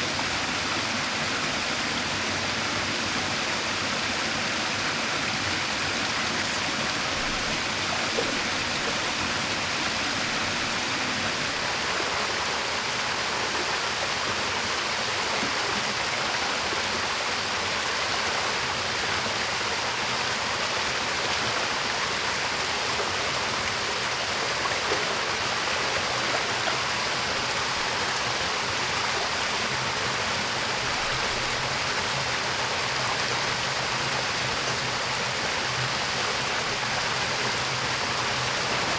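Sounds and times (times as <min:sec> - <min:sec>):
waterfall pouring into pool: 0:00.0 - 0:38.9.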